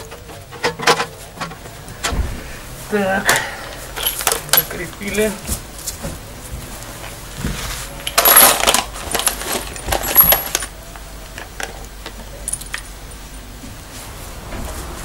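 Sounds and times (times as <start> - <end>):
metal bolts and nuts clinking: 0.0 - 2.1, 3.2 - 5.4, 8.0 - 13.0.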